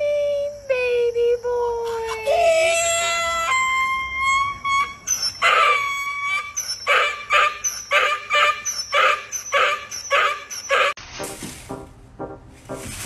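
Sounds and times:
donkey braying: 0:02.2 - 0:11.0.

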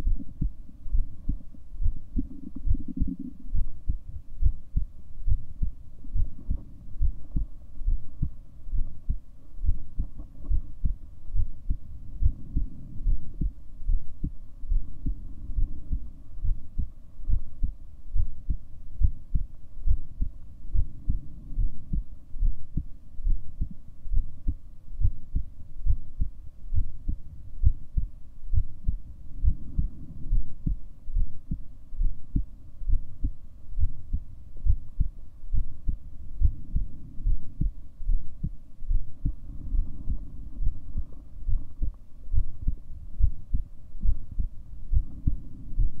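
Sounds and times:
heartbeat thumps: 0:00.0 - 0:46.0.

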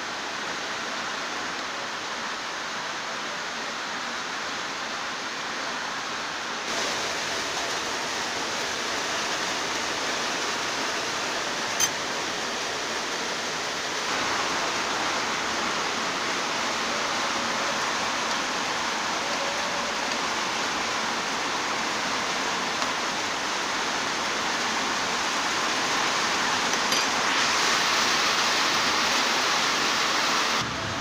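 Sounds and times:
water boiling: 0:06.7 - 0:31.0.

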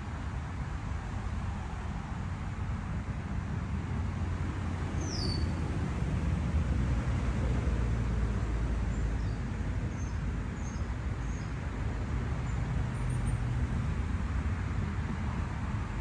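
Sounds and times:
distant road traffic rumble: 0:00.0 - 0:16.0
faint bird chirps: 0:05.0 - 0:05.5.

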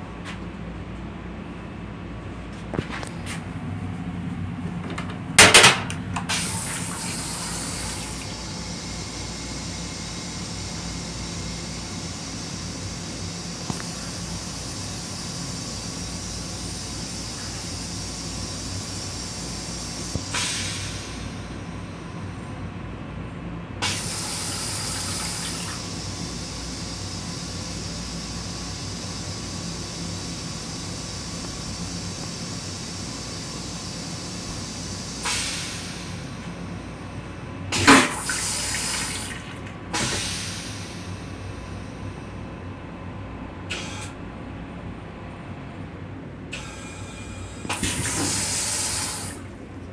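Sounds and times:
railcar low rumble: 0:00.0 - 0:49.9
toilet flush water spraying: 0:06.3 - 0:21.4, 0:23.8 - 0:30.0, 0:37.8 - 0:41.1, 0:47.7 - 0:49.6.

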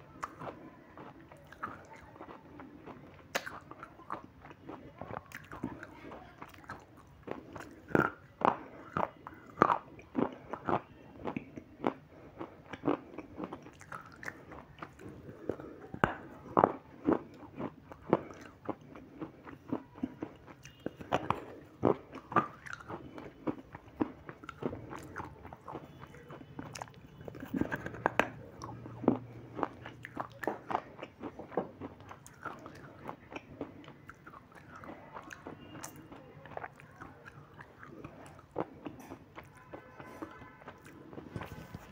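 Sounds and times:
biting and chewing crunches: 0:00.0 - 0:41.9.

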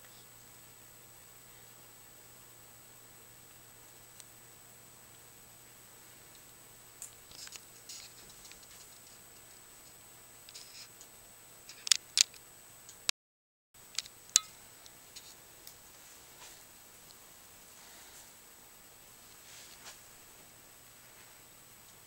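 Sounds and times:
sharp clicks: 0:09.9 - 0:13.1.

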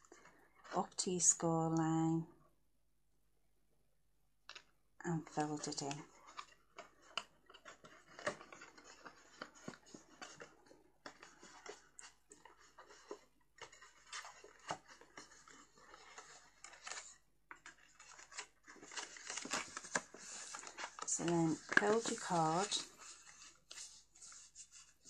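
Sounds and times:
cardstock rustling: 0:05.2 - 0:25.0.

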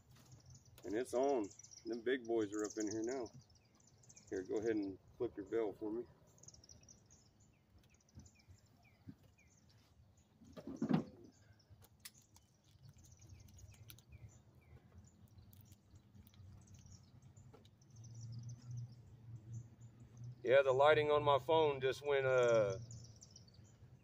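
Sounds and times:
small birds chirping: 0:00.0 - 0:24.0
man's voice: 0:20.5 - 0:22.8.

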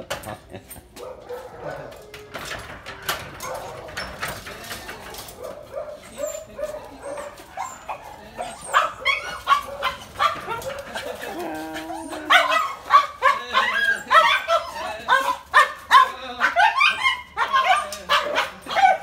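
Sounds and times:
metal scissor gate clattering: 0:00.0 - 0:07.4
dogs whining and yelping: 0:01.0 - 0:02.7, 0:03.4 - 0:19.0.

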